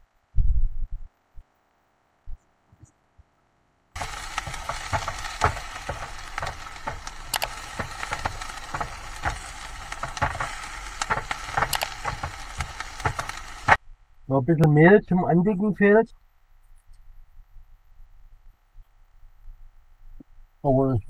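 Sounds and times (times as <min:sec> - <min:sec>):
food sizzling in a pan: 0:04.0 - 0:13.8.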